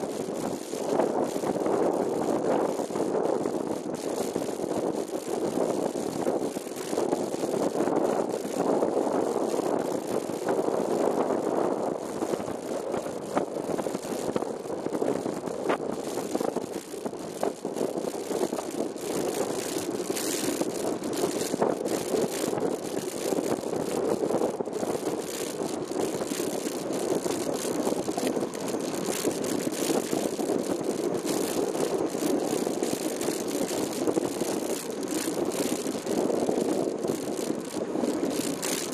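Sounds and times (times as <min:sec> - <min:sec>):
bicycle tyre road noise: 0:00.0 - 0:38.9
camera rattling: 0:00.0 - 0:38.9.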